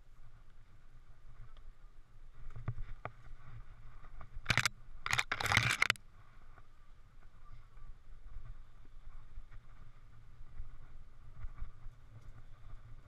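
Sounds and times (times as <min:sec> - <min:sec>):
sharp clicks and rattles: 0:04.4 - 0:06.0.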